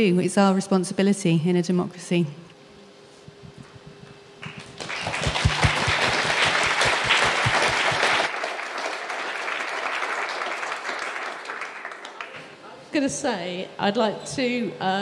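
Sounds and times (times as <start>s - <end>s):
audience applauding: 4.4s - 12.4s.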